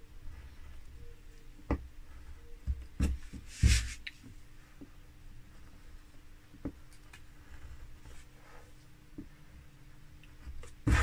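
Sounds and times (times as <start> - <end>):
carving chisel scraping wood: 10.4 - 11.0.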